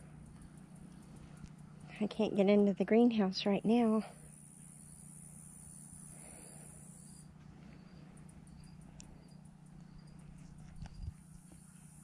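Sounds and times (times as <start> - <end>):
insect high buzz: 0.0 - 2.7, 3.4 - 12.0
insect faint chirps: 0.0 - 12.0
low steady hum: 0.0 - 12.0.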